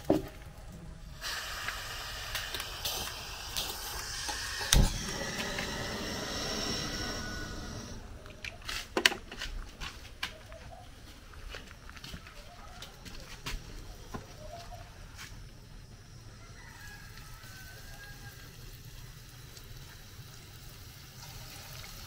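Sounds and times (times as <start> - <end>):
hot oil hissing in a pan: 1.0 - 8.9, 15.8 - 22.0.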